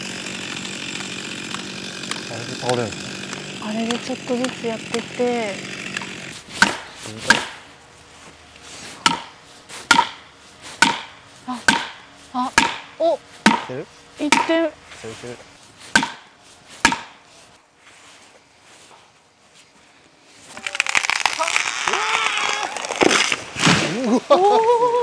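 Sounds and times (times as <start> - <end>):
chainsaw: 0.0 - 7.7, 20.5 - 24.7
hammer striking felling wedge: 0.0 - 7.7, 8.8 - 14.7, 15.8 - 17.3.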